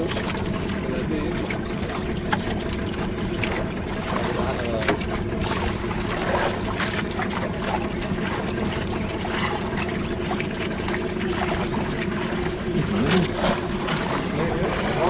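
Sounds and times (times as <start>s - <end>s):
boat engine hum: 0.0s - 15.0s
water: 0.0s - 15.0s
wind: 0.0s - 15.0s.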